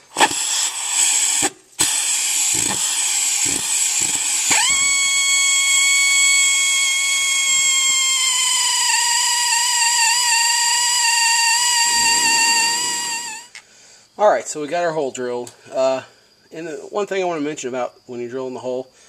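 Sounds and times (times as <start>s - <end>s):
power drill boring into steel: 4.5s - 6.5s.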